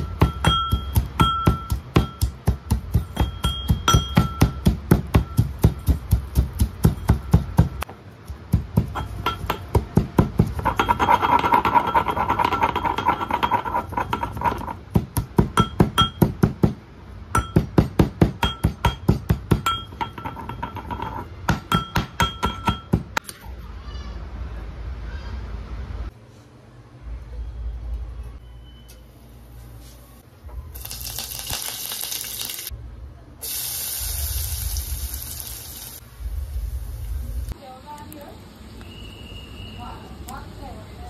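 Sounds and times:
metal pestle pounding in mortar: 0.0 - 23.2.

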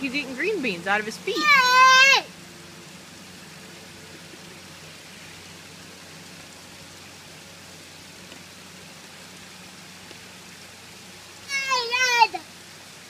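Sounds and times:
background hiss: 0.0 - 13.0
faint tick: 10.0 - 10.2.

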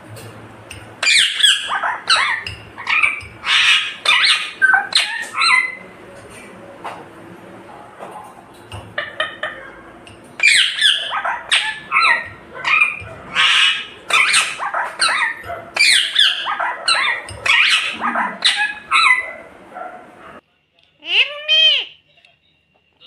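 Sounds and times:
parakeet squawking: 1.0 - 5.9, 8.9 - 19.9.

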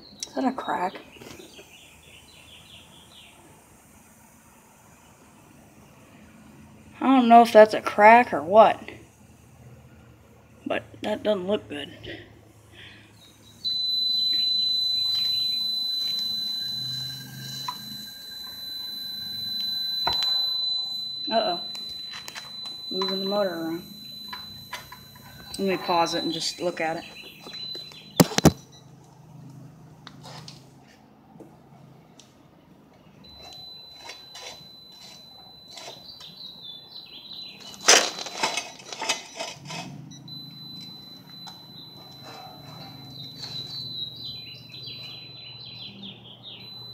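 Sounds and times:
high-pitched alarm beep: 13.2 - 28.8, 33.2 - 46.9
metallic clinks of tools: 16.8 - 26.4, 33.3 - 36.4.

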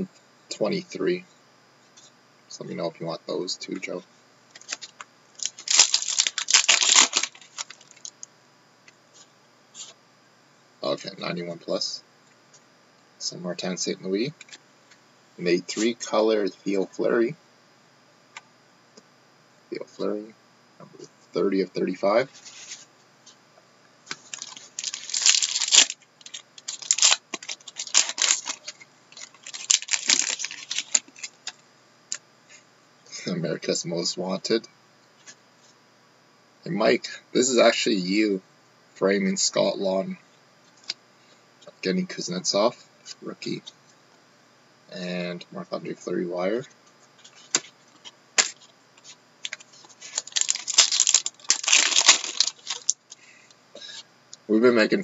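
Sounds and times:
foil wrappers crinkling: 4.5 - 8.2, 24.1 - 31.6, 47.2 - 53.3.

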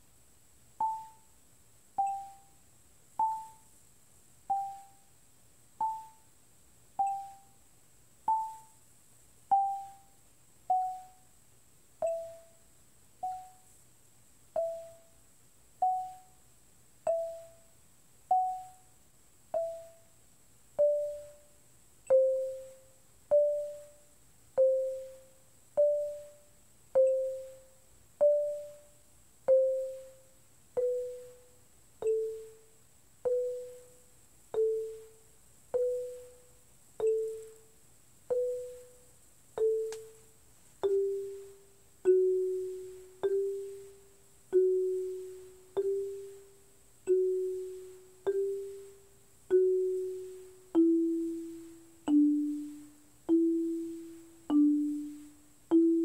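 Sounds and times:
marimba notes: 0.8 - 1.3, 2.0 - 2.6, 3.2 - 3.7, 4.5 - 5.1, 5.8 - 6.3, 7.0 - 7.6, 8.3 - 8.8, 9.5 - 11.2, 12.0 - 12.6, 13.2 - 13.6, 14.6 - 15.2, 15.8 - 16.4, 17.0 - 17.7, 18.3 - 18.9, 19.6 - 20.1, 20.8 - 21.5, 22.1 - 24.0, 24.6 - 37.7, 38.3 - 56.0.

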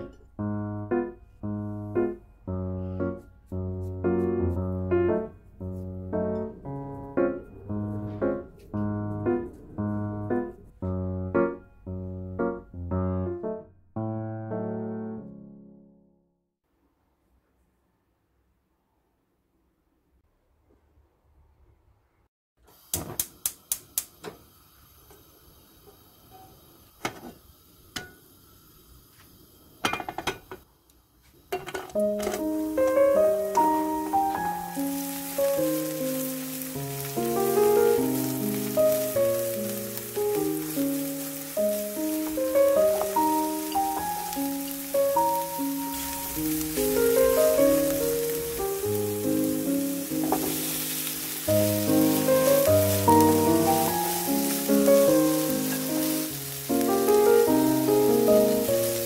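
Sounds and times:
piano chords: 0.0 - 16.3, 32.0 - 59.0
dishes and utensils clinking: 29.8 - 30.6, 31.5 - 32.5, 50.2 - 50.7.

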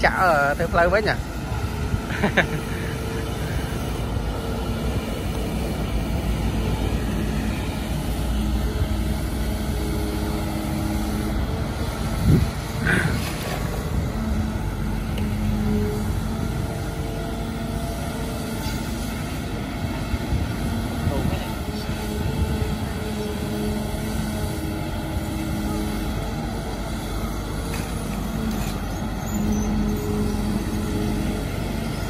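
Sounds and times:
excavator diesel engine running: 0.0 - 32.0
higher-pitched squeal: 21.0 - 32.0.

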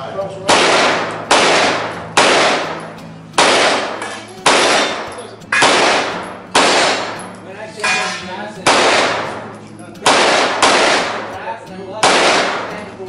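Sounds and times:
handgun shots echoing: 0.4 - 13.0.

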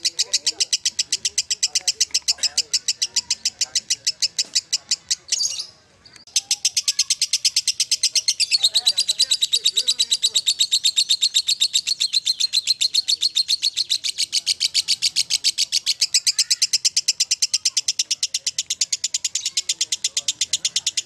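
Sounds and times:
lovebird shrill chatter: 6.3 - 21.0.

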